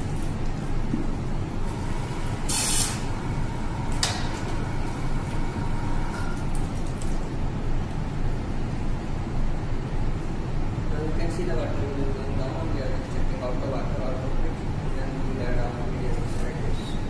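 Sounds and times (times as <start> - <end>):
short hiss: 2.5 - 3.0.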